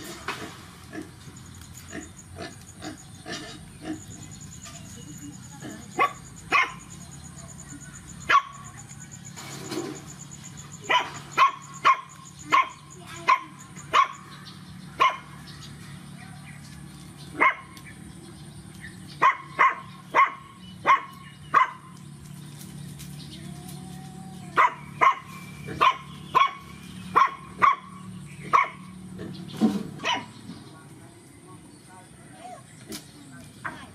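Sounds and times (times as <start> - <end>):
puppy yapping: 24.5 - 28.9.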